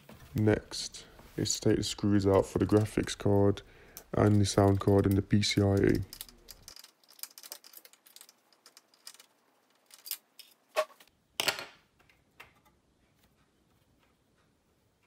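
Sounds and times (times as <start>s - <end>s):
small metallic clicks and rattles: 3.9s - 10.6s.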